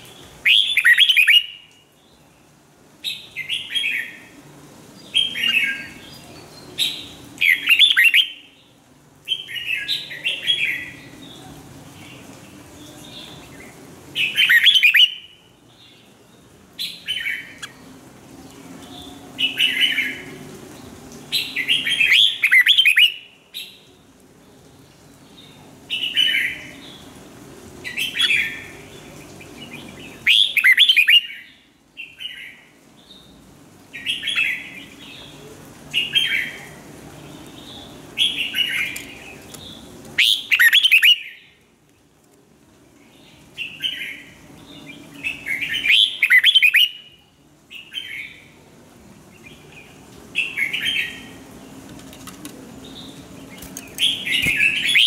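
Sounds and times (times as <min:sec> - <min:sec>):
bird singing warbled phrases: 0:00.0 - 0:04.3, 0:05.0 - 0:18.0, 0:20.9 - 0:23.9, 0:27.8 - 0:36.6, 0:37.2 - 0:41.6, 0:42.9 - 0:48.6, 0:49.3 - 0:51.8, 0:52.8 - 0:55.0.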